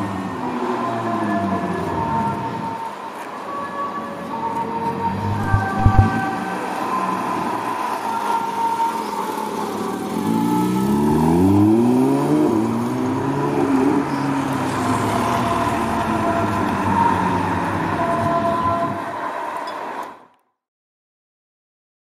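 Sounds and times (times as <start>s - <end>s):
sports car engine accelerating: 10.3s - 14.2s.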